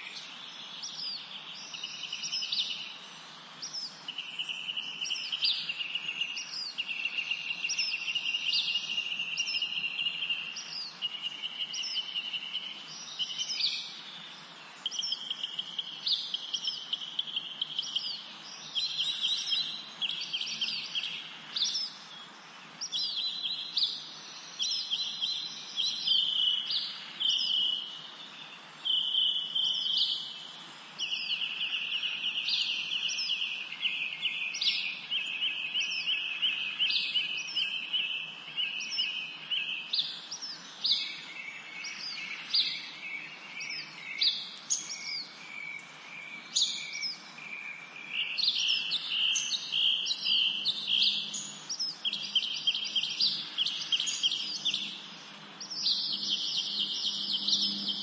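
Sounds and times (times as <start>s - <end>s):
birds chirping: 0.0s - 58.0s.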